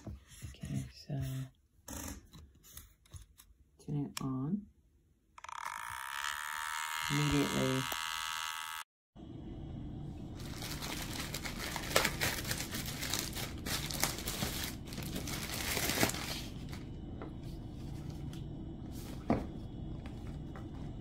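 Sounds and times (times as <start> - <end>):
steady low hum: 9.2 - 21.0
plastic wrapping crinkling: 10.4 - 16.9.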